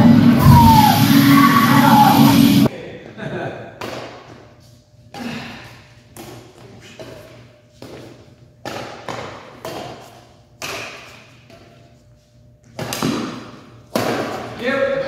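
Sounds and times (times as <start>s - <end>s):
sharp knocks with room echo: 10.6s - 11.2s, 12.7s - 14.6s.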